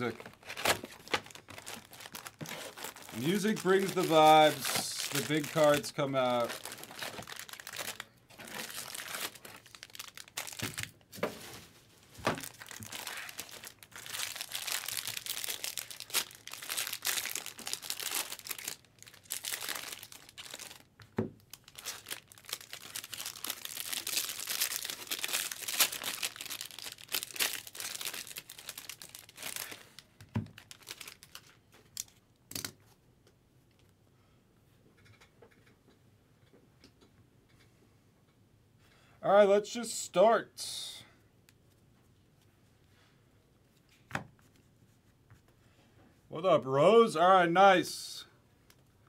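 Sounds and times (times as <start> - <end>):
foil wrappers crinkling and tearing: 0.0 - 11.0, 12.2 - 32.7.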